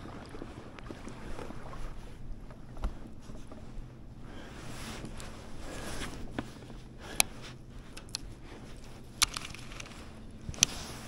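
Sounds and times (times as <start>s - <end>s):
steady low hum: 0.0s - 11.0s
water sloshing against boat hull: 0.0s - 11.0s
light knocks against boat: 2.4s - 3.6s.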